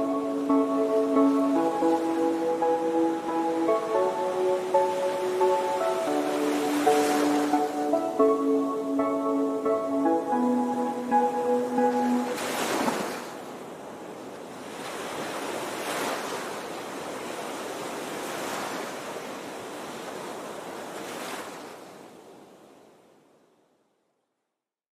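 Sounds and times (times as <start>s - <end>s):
small waves lapping on shore: 0.0s - 8.2s, 12.1s - 23.3s.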